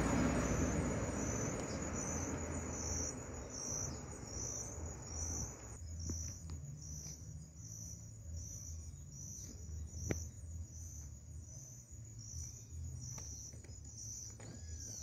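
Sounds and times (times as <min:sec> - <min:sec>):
low rumble: 0:00.0 - 0:06.2
insect chirping: 0:00.0 - 0:15.0.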